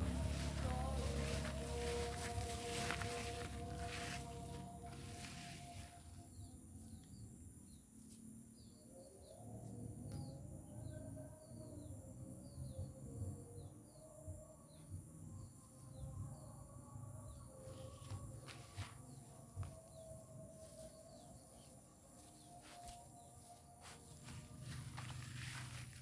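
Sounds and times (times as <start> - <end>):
low rumble: 0.0 - 5.3.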